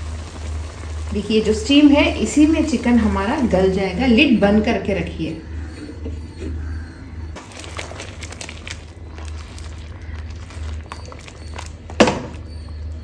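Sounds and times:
food simmering in a pan: 0.0s - 3.7s
steady low hum: 0.1s - 13.0s
crackles and sputters: 7.4s - 13.0s.

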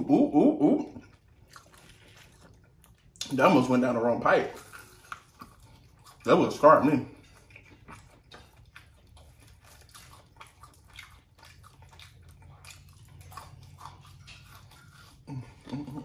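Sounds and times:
biting into meat: 7.2s - 16.0s.

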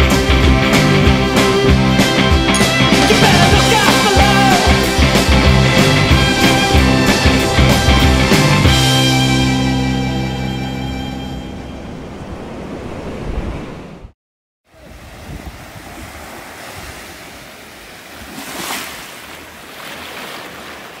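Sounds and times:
rock song: 0.0s - 11.0s
small waves washing up beach: 14.6s - 21.0s
wind noise on microphone: 14.8s - 17.1s.

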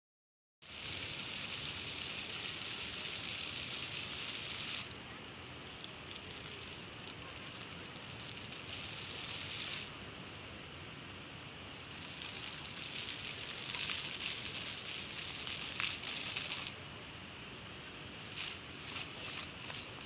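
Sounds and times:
fountain jets splashing water: 0.7s - 9.9s, 11.7s - 16.8s, 18.2s - 20.0s.

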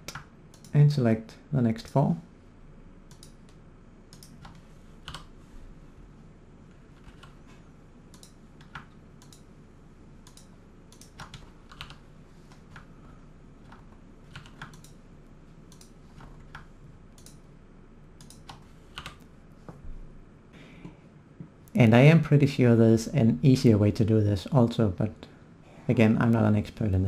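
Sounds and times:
keyboard and mouse clicks: 0.0s - 0.8s, 3.1s - 5.3s, 8.1s - 9.5s, 10.2s - 12.9s, 13.6s - 15.0s, 15.7s - 17.4s, 18.2s - 19.3s
low steady hum: 0.0s - 27.0s.

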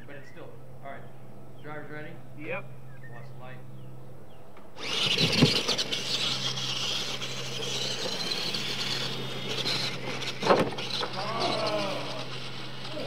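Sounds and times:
toy truck motors whirring: 4.8s - 13.0s.

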